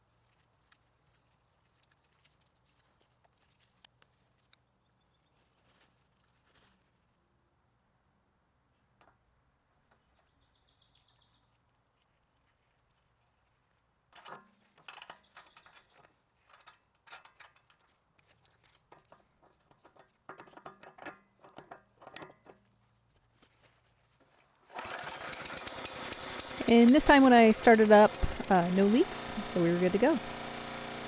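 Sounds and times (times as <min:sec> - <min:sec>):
small engine running: 0:24.7 - 0:31.0.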